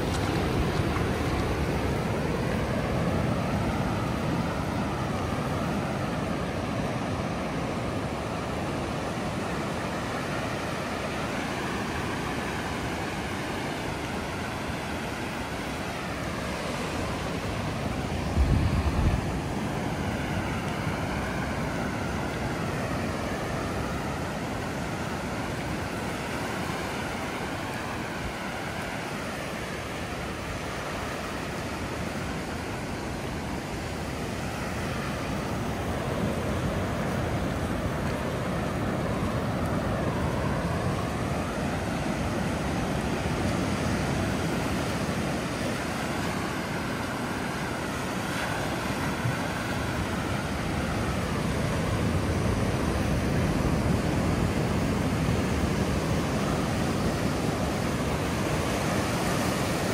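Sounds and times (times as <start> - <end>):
ocean surf on sandy beach: 0.0 - 59.9
wind on microphone: 16.6 - 22.7.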